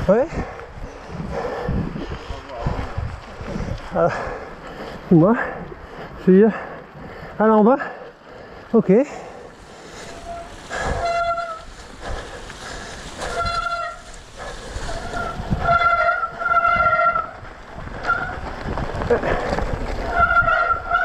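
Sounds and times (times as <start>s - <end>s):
tyres rumbling on dirt trail: 0.0s - 21.0s
bike disc brakes squealing: 10.1s - 11.7s, 13.3s - 14.1s, 14.8s - 17.3s.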